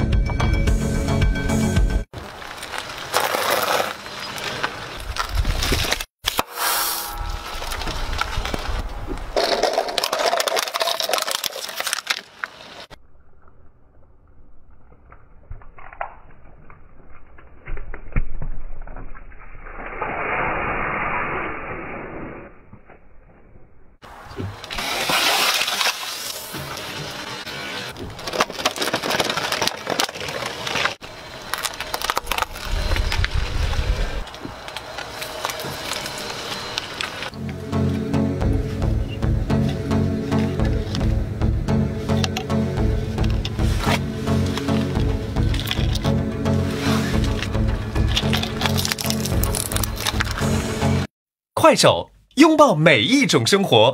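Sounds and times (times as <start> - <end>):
tyre crushing plastic toys: 2.2 - 6.1, 9.4 - 12.8, 24.5 - 27.2, 27.8 - 33.3, 43.2 - 46.2, 46.8 - 50.5.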